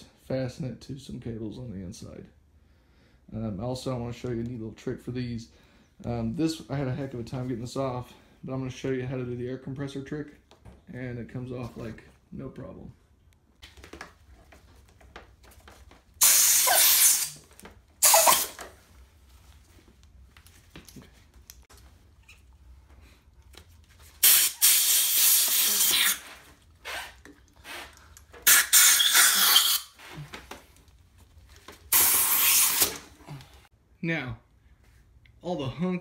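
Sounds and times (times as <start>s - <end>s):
compressed air hissing: 16.2s - 17.4s, 18.0s - 18.6s, 24.2s - 30.0s, 31.9s - 33.1s.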